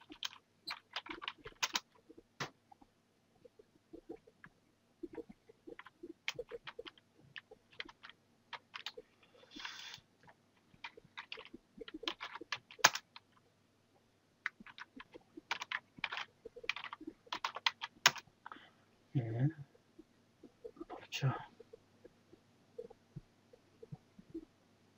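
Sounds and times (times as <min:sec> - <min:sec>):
short hiss: 0:09.5 - 0:10.0.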